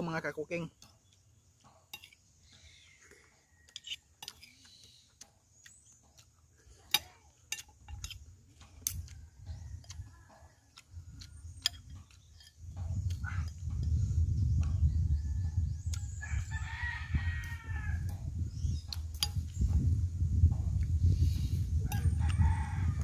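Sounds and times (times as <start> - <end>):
cutlery clinking on plate: 1.7 - 2.2
soft low rumbles: 7.9 - 23.0.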